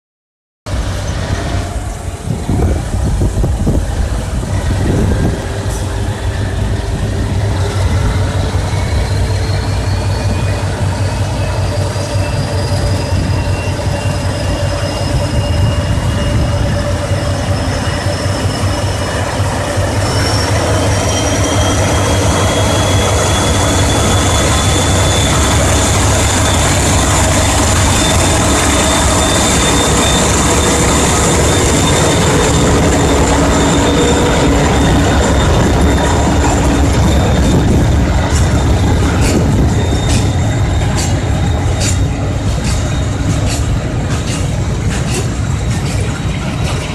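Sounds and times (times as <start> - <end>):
diesel locomotive engine droning: 0.6 - 46.9.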